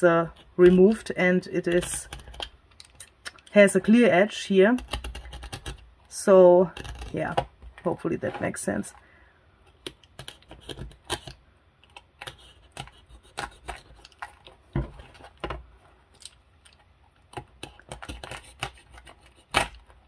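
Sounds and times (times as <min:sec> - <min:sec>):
utility knife cutting paper: 0:12.0 - 0:14.3, 0:17.4 - 0:19.9.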